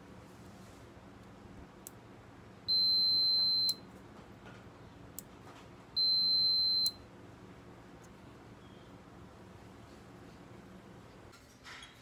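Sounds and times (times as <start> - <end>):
multimeter continuity beeping: 2.6 - 4.0, 5.9 - 7.1.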